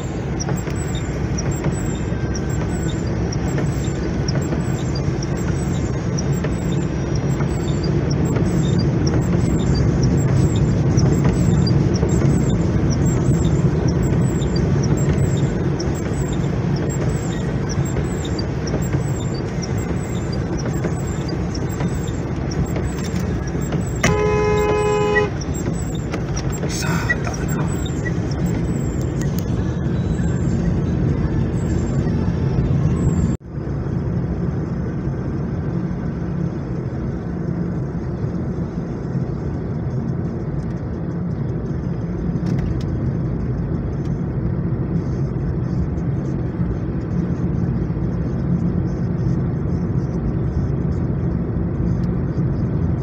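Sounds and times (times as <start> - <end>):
car road and engine noise: 0.0 - 53.0
car horn: 23.8 - 25.8.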